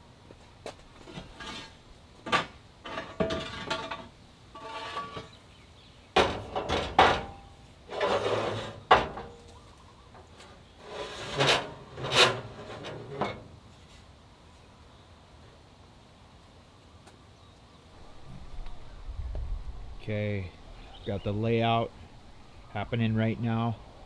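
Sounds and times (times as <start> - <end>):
metal scraping on metal: 1.0 - 5.4, 6.2 - 9.4, 10.8 - 13.5.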